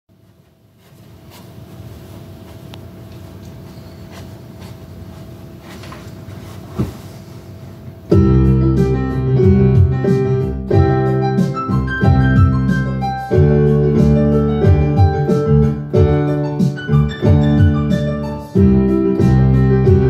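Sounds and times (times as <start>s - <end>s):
bass line: 8.1s - 20.0s
keyboard playing piano chords: 8.1s - 20.0s.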